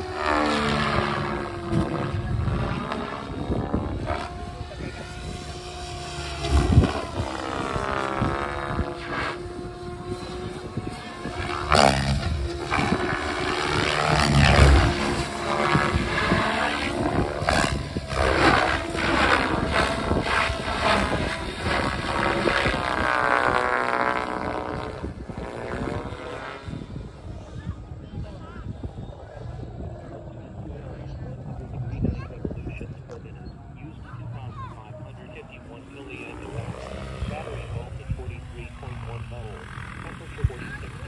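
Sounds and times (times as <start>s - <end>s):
rotor whooshes: 0.0s - 27.3s
helicopter rotor blades whirring: 0.0s - 41.0s.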